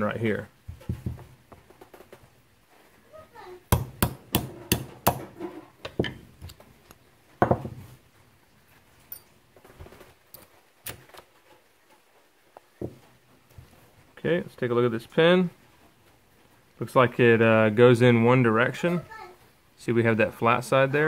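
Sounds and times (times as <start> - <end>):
hammer tapping metal punch: 3.7 - 5.3.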